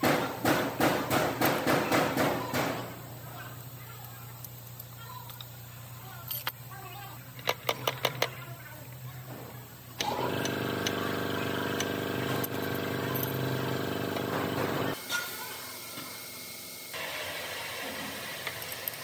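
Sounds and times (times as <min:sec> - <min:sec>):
pitched machine drone: 0:10.0 - 0:15.0.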